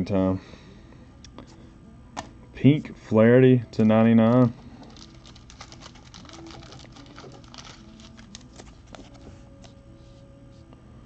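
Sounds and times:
trading card clicks and rustles: 4.3 - 9.8.

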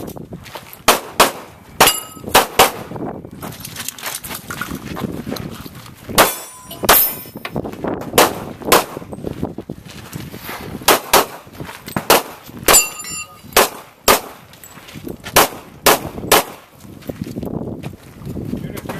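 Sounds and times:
gunshots: 0.9 - 2.9, 6.2 - 7.2, 8.2 - 9.1, 10.9 - 11.4, 12.0 - 12.9, 13.5 - 14.4, 15.4 - 16.6
metallic ring of steel target: 1.8 - 2.4, 6.2 - 7.6, 12.7 - 13.6.

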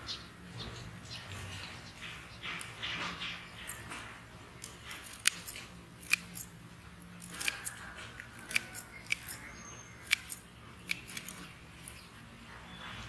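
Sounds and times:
shears snipping stems: 2.4 - 6.5, 7.2 - 12.1.

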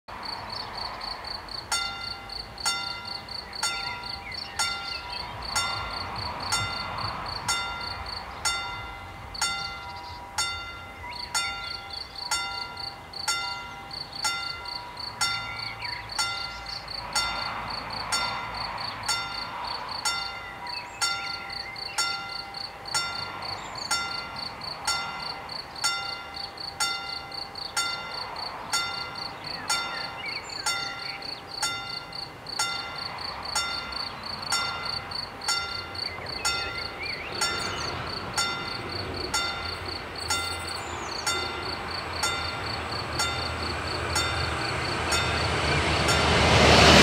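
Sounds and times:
approaching train rumble: 0.1 - 47.0
level crossing bell ringing: 1.7 - 46.6
birds chirping: 1.8 - 6.9, 7.7 - 17.6, 18.2 - 46.3.

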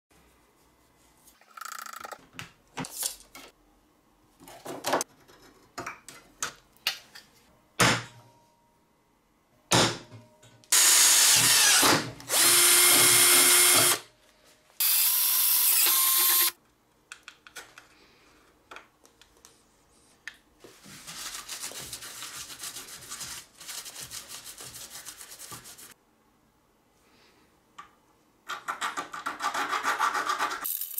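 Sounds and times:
power drill boring through metal: 10.7 - 14.0, 14.8 - 16.6.

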